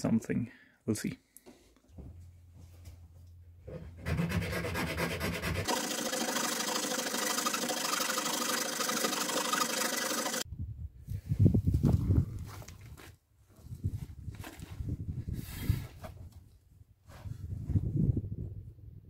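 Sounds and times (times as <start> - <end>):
hand file scraping plastic: 3.7 - 10.4.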